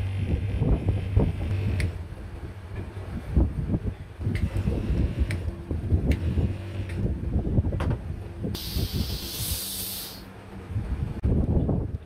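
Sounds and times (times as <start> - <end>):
pressurised gas hissing from hose: 8.5 - 10.3.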